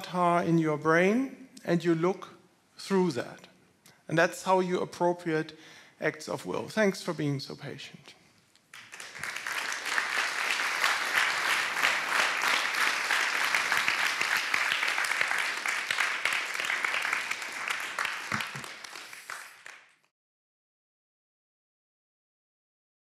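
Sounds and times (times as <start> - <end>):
audience applause: 8.7 - 20.1.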